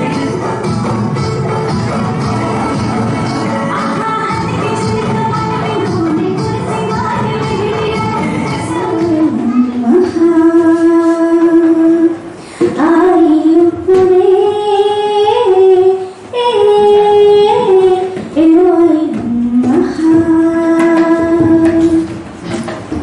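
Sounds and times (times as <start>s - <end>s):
woman singing: 3.4s - 22.2s
woman breathing: 12.3s - 12.8s.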